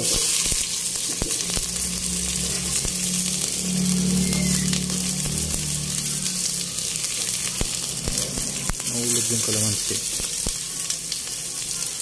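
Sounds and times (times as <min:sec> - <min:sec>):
onions sizzling in hot oil: 0:00.0 - 0:12.0
low hum: 0:00.6 - 0:08.8.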